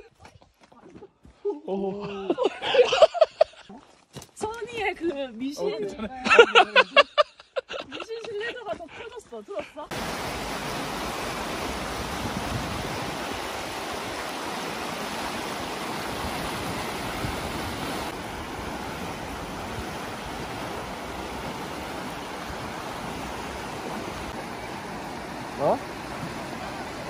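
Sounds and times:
river rushing over stones: 0:09.9 - 0:27.0.

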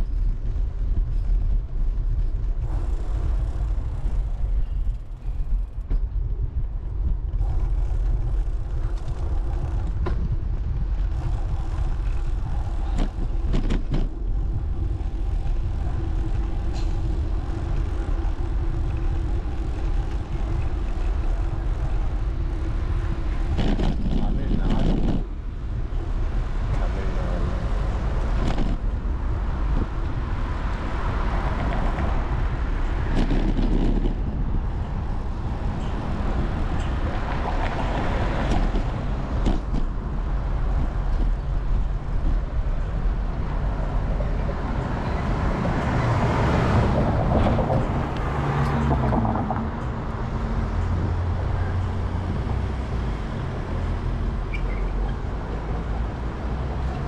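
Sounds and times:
passing cars: 0:00.0 - 0:57.0
wind rumble on microphone: 0:00.0 - 0:57.0.

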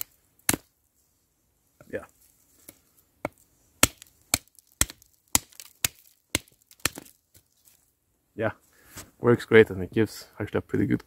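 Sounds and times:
knife chopping branch: 0:00.0 - 0:00.7, 0:02.6 - 0:07.4.

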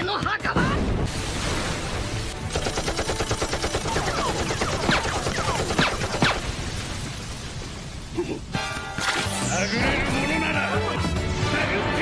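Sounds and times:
machine-gun fire: 0:02.5 - 0:06.5.

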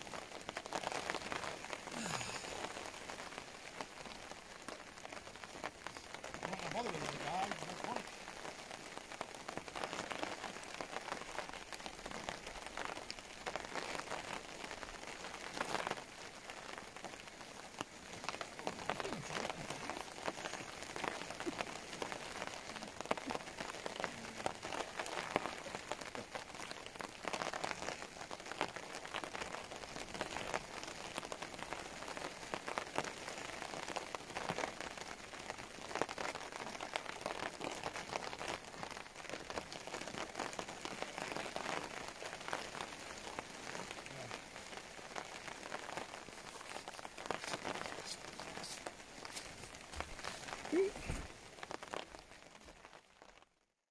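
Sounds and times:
heavy rain falling: 0:00.0 - 0:53.7.

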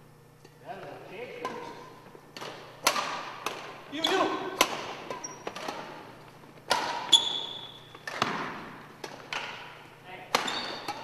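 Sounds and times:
racket striking shuttlecock: 0:01.4 - 0:11.0
shoe squeak: 0:05.1 - 0:05.6, 0:07.0 - 0:07.9, 0:10.4 - 0:11.0.

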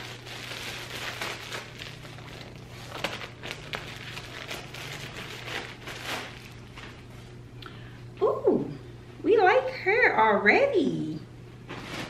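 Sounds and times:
plastic packaging crinkling: 0:00.0 - 0:07.3, 0:11.7 - 0:12.0
steady low hum: 0:00.0 - 0:12.0.

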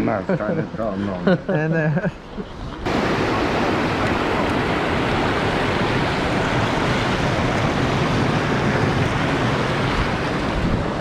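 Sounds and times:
water rushing over weir: 0:02.8 - 0:11.0.

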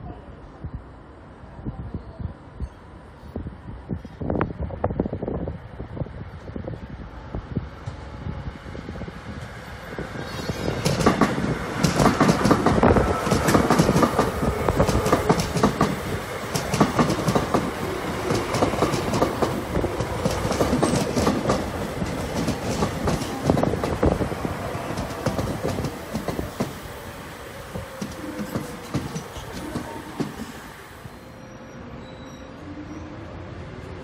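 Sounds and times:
train wheels clattering over rail joints: 0:10.3 - 0:24.3, 0:24.9 - 0:26.9, 0:27.8 - 0:30.6.

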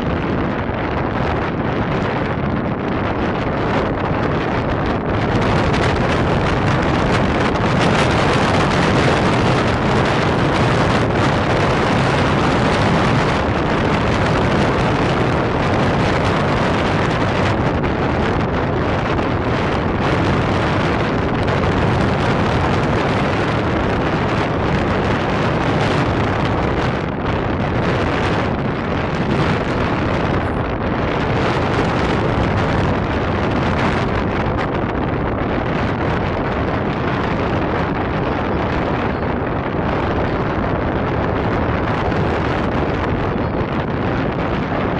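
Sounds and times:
wind buffeting microphone: 0:00.0 - 0:44.9.

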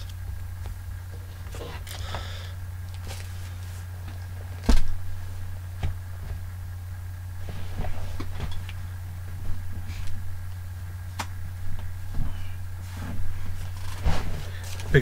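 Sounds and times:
low electrical hum: 0:00.0 - 0:15.0
person handling things: 0:02.9 - 0:04.9.

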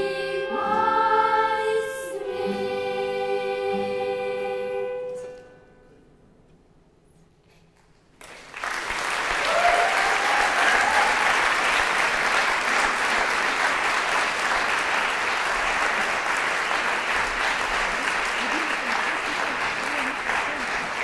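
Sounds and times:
audience applause: 0:08.2 - 0:21.0.

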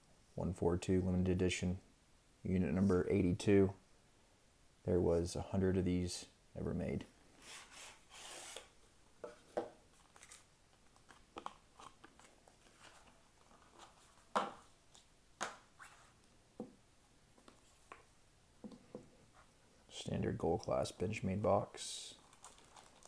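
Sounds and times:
cardboard sleeve sliding: 0:07.4 - 0:08.7.

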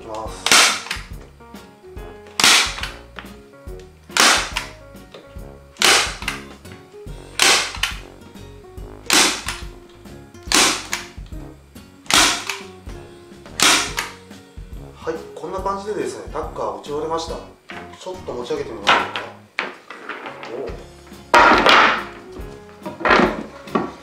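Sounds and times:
staple gun snaps: 0:00.4 - 0:01.2, 0:02.3 - 0:03.0, 0:03.8 - 0:04.8, 0:05.8 - 0:06.6, 0:07.4 - 0:08.0, 0:10.5 - 0:11.3, 0:12.1 - 0:12.7, 0:13.6 - 0:14.2.

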